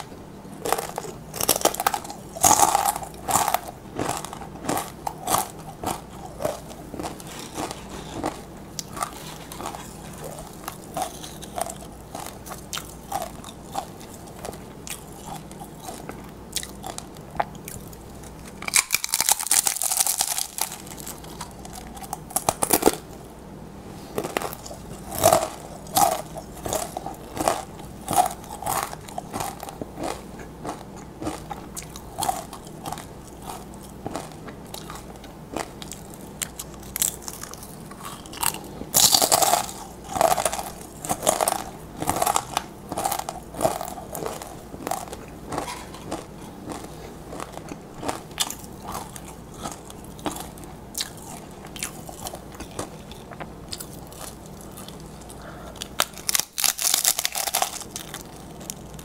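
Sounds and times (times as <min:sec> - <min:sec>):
crunching chips being chewed: 0:00.6 - 0:23.2, 0:24.2 - 0:59.0.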